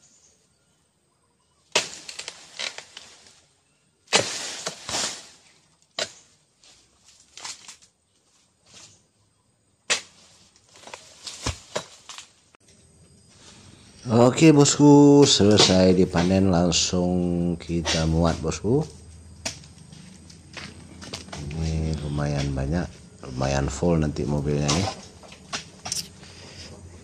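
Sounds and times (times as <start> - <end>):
fronds rustling and crackling: 1.6 - 9.2, 9.8 - 26.5
cutting tool striking palm: 15.4 - 16.5, 19.4 - 19.7.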